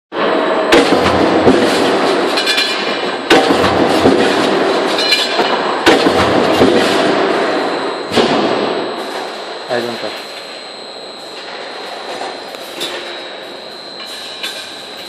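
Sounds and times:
steady machine noise: 0.1 - 15.0
stamping press strikes: 0.7 - 8.8.

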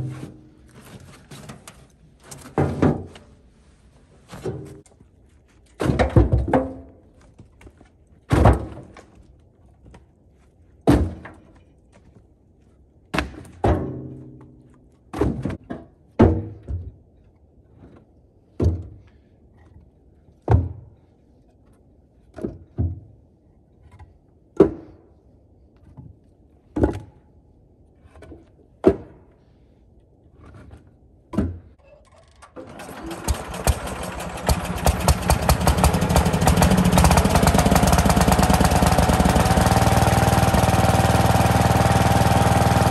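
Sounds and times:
logs thunking into metal cart: 0.0 - 3.3, 5.8 - 7.0, 8.3 - 9.2, 10.8 - 11.6, 31.4 - 39.9
tractor engine running: 32.6 - 42.9.

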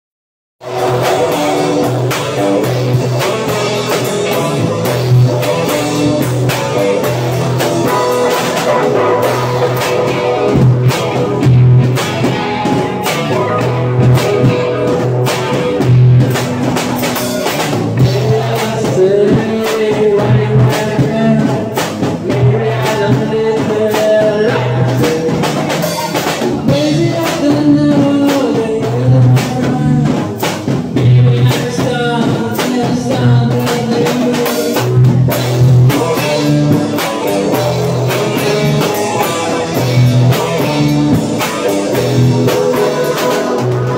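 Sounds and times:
male lead vocal: 0.6 - 10.2, 16.3 - 43.9
rock band playing live: 0.6 - 43.9.

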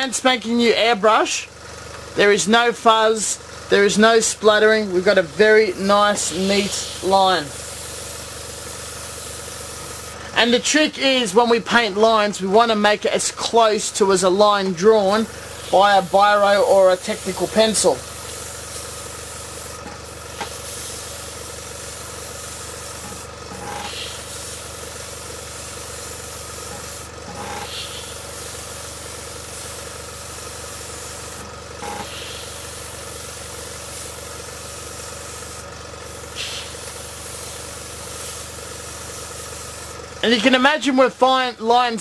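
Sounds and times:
compressor humming: 0.0 - 42.0
airbrush hissing: 5.1 - 10.3, 14.8 - 40.0.

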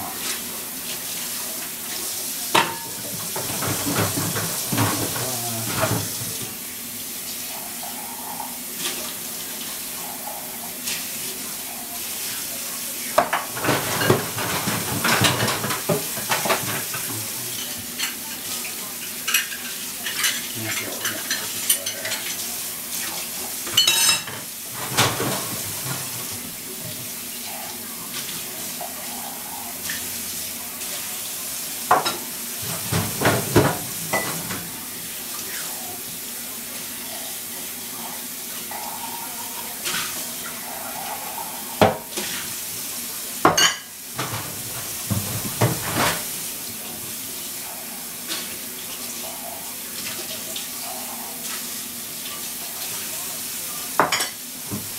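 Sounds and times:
dishes clinking in a sink: 2.4 - 6.6, 13.2 - 27.1, 31.9 - 34.8, 40.9 - 42.4, 43.4 - 46.3, 53.9 - 54.9.

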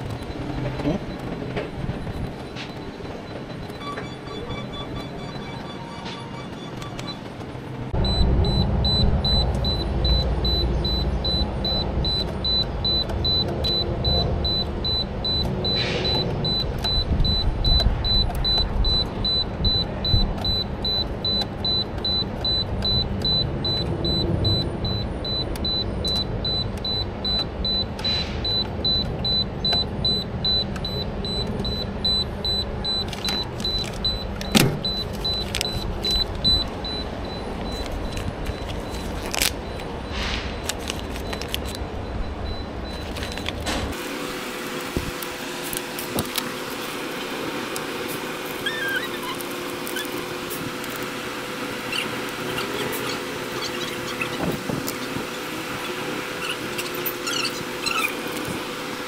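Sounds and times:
high-pitched whine: 0.0 - 11.6
low machinery rumble: 0.0 - 45.6.

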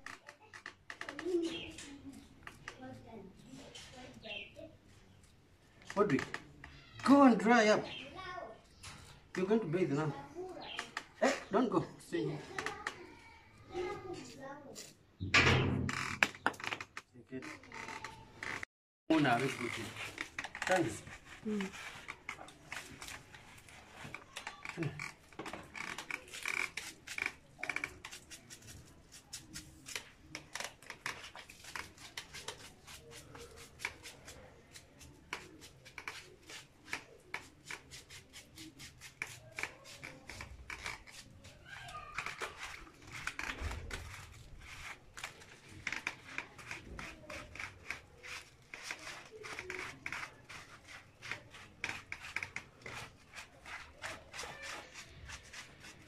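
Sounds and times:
hands scrubbing wet fur: 42.2 - 56.0.

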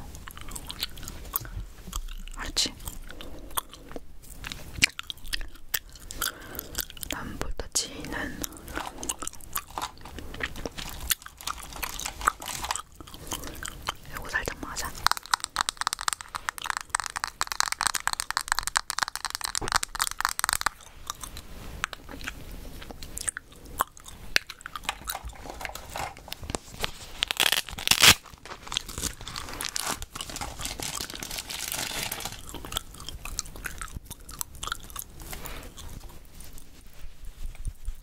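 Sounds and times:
gum chewing with crackly clicks: 0.0 - 7.3, 7.9 - 36.8
rummaging: 8.7 - 13.0, 24.8 - 32.5.

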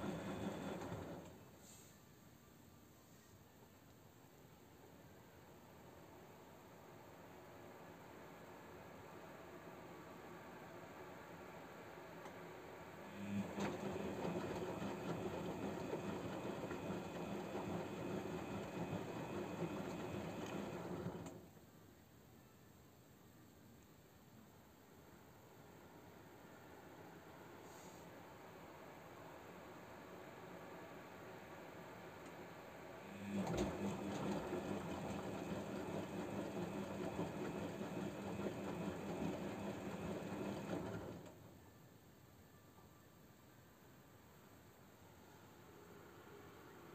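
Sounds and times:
washing machine drum whirring: 0.0 - 1.6, 6.6 - 21.6, 28.4 - 41.7.

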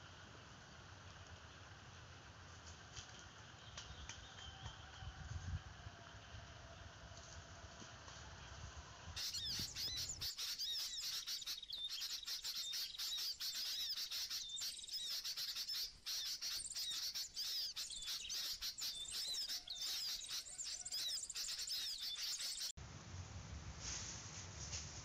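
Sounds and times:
small birds chirping: 9.2 - 22.8.

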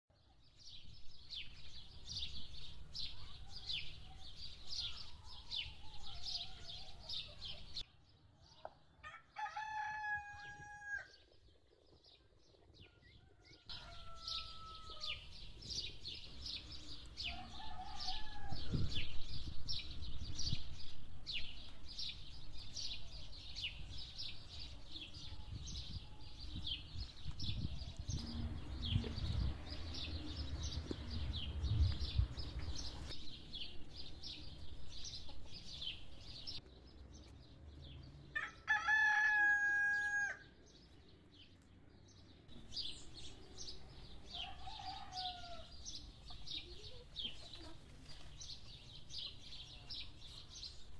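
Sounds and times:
rooster crowing: 9.0 - 11.1, 13.1 - 15.2, 17.3 - 18.7, 38.4 - 40.4, 44.4 - 45.7.

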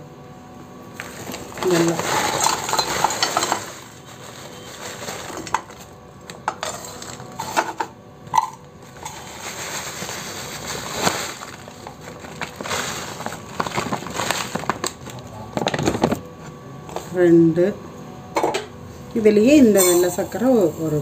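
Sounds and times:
plastic bag crinkling: 1.0 - 7.4, 8.4 - 16.2
lumps clinking against steel tumbler: 1.6 - 3.8.

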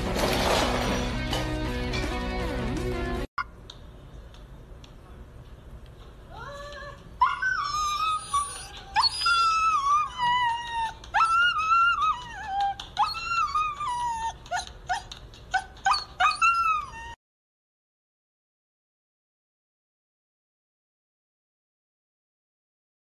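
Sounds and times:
dog whining and howling: 7.2 - 17.2
dog yelping: 7.2 - 17.2.

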